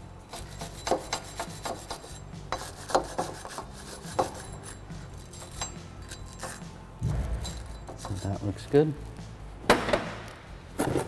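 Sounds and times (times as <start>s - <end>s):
wire brush scrubbing metal: 0.3s - 6.8s, 7.5s - 8.8s.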